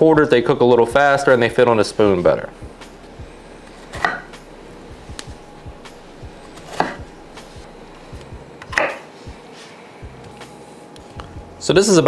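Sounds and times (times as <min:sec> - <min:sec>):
knife chopping potato slices: 0:03.7 - 0:04.4, 0:06.6 - 0:07.1.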